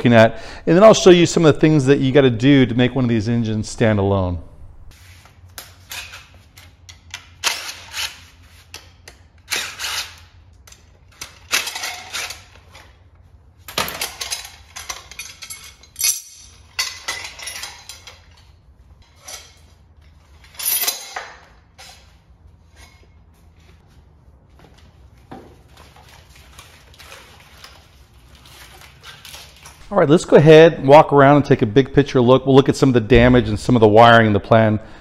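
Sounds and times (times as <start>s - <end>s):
metal brackets clanking: 13.8s - 19.7s.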